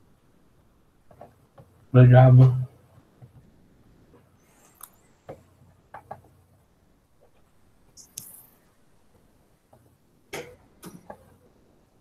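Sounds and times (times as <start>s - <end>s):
faint clicks and knocks: 1.0s - 1.9s, 2.9s - 6.6s, 7.2s - 11.6s.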